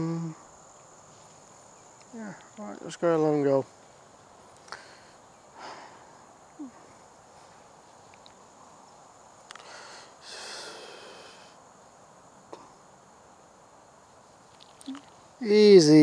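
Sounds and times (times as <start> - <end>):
insects chirring: 0.0 - 16.0
faint clicks and rustles: 6.9 - 8.6, 14.3 - 15.4.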